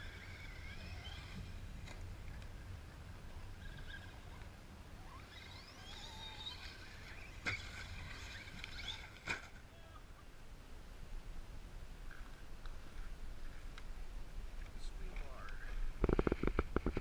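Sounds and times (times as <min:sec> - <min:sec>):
toy truck motor whining: 0:00.0 - 0:01.6, 0:05.0 - 0:09.2
wind rumble on microphone: 0:11.0 - 0:17.0.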